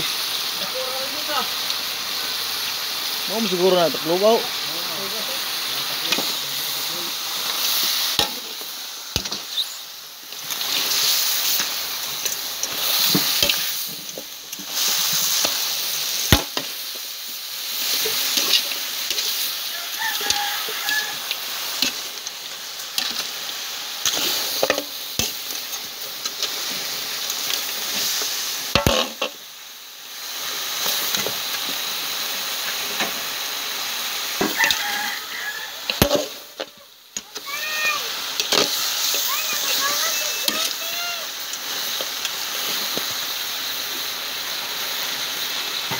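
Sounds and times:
meat sizzling in a wok: 0.0 - 45.9
metal spatula scraping a pan: 28.8 - 29.4.

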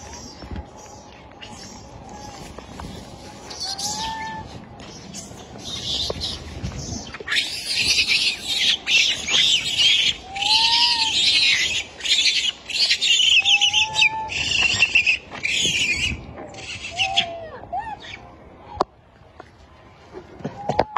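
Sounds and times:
baby monkey squealing: 7.0 - 17.3.

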